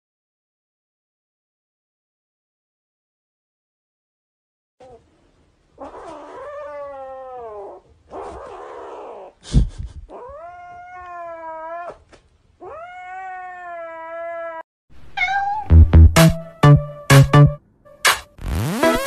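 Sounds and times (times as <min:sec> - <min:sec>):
kitten yowling meows: 0:05.8 - 0:09.3, 0:10.1 - 0:14.6, 0:15.2 - 0:15.7.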